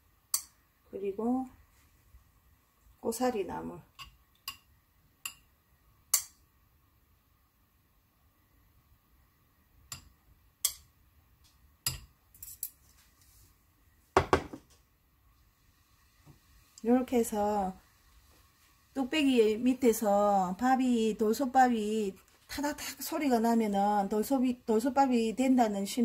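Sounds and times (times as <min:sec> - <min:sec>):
chopsticks tapping stone pot: 0:04.0 - 0:05.5, 0:06.1 - 0:06.4, 0:09.9 - 0:10.9, 0:11.8 - 0:12.1.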